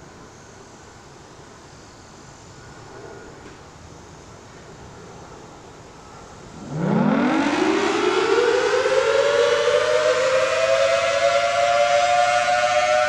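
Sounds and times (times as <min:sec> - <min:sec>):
warning siren wailing: 0:06.5 - 0:13.0.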